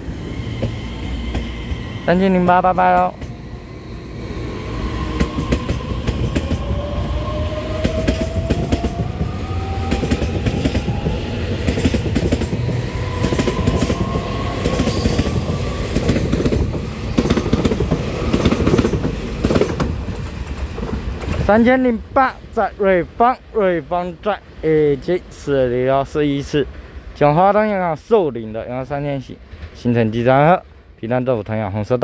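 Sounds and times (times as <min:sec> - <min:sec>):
train rumble: 0:00.0 - 0:31.0
wheels clicking over rail joints: 0:09.9 - 0:21.7.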